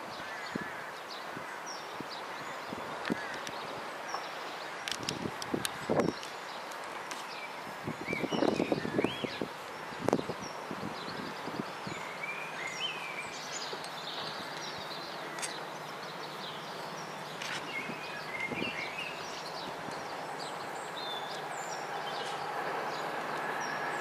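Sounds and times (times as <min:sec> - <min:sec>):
small birds chirping: 0:00.0 - 0:24.0
distant approaching train: 0:12.0 - 0:24.0.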